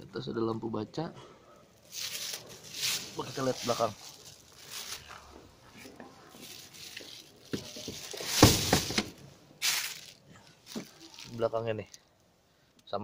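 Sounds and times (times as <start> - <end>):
plastic wrap rustling: 1.8 - 12.0
knocks and thuds: 7.5 - 9.2.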